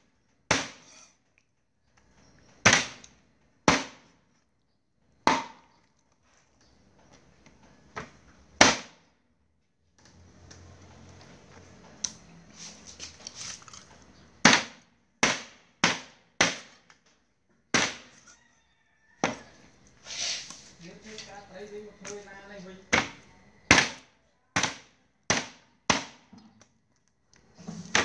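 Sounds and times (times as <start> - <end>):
cleaver chopping on wooden board: 0.5 - 0.8, 5.3 - 5.7, 8.6 - 9.0, 14.4 - 16.7, 17.7 - 18.1, 22.9 - 24.0, 24.6 - 26.3.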